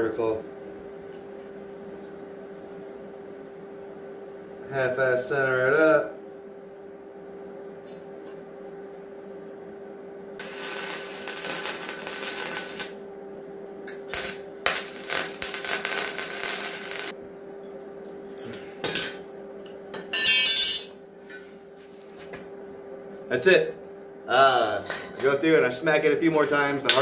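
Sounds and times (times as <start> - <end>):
steady hum: 0.0 - 27.0
welding arc crackling: 10.4 - 13.0, 13.9 - 17.2.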